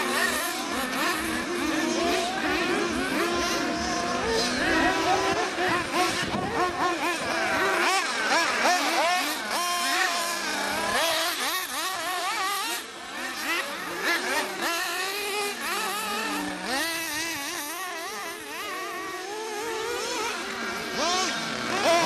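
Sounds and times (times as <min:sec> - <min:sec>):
model car engines racing: 0:00.0 - 0:22.0.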